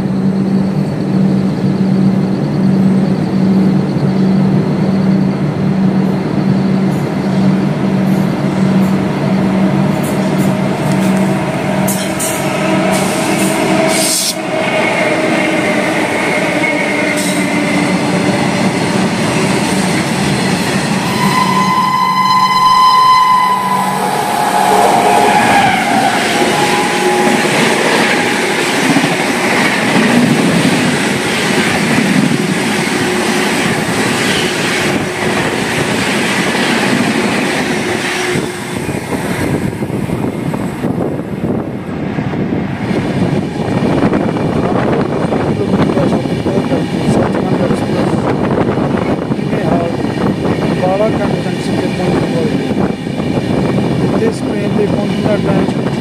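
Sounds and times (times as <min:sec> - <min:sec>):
train coaches rumbling past: 0:00.0 - 0:56.0
train horn blast: 0:21.0 - 0:28.8.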